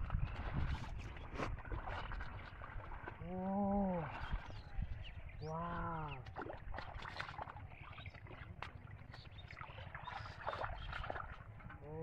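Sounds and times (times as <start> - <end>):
splashing in shallow water: 0.0 - 12.0.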